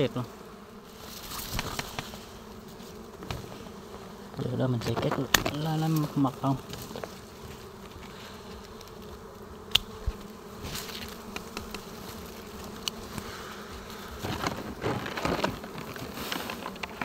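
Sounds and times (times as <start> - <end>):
bees buzzing: 0.0 - 17.0
twigs and leaves rustling: 0.8 - 17.0
pruning shears snip: 9.7 - 11.9.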